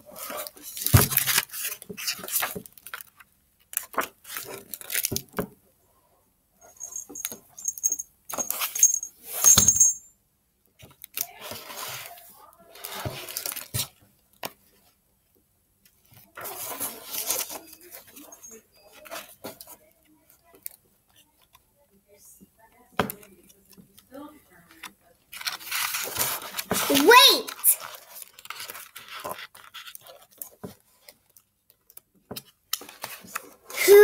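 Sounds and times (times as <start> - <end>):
book pages rustling: 0.1 - 5.4, 15.9 - 19.9, 24.6 - 33.8
light jingling: 6.6 - 10.1.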